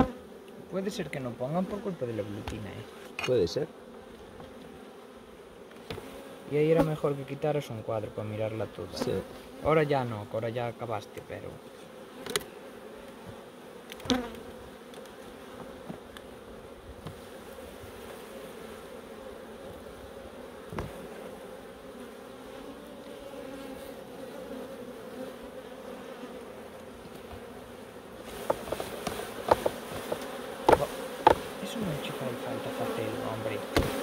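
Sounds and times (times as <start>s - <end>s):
honeybees humming: 0.0s - 34.0s
sharp knocks: 28.4s - 31.5s, 33.7s - 34.0s.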